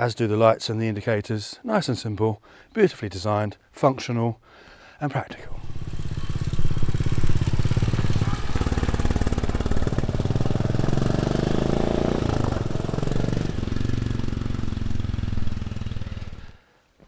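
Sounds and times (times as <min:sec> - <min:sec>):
motorcycle engine accelerating: 0:05.5 - 0:16.6.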